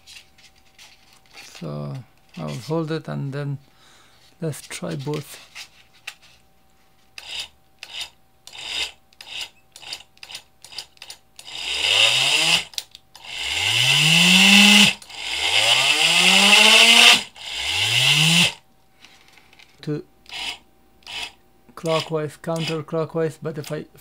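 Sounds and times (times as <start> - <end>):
small electric motor whining: 7.2 - 10.0, 11.4 - 18.6, 20.3 - 22.8.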